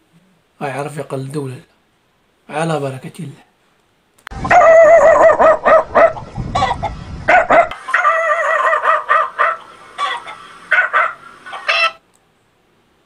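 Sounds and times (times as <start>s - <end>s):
dog barking and yelping: 4.4s - 12.0s
man imitating dog barks: 4.5s - 6.2s, 7.3s - 9.6s.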